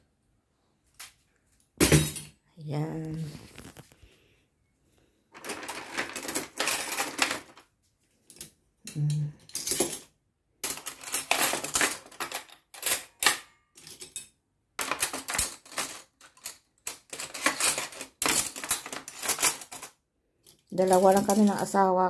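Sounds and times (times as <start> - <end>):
cutlery clattering: 5.4 - 7.6, 9.4 - 21.7.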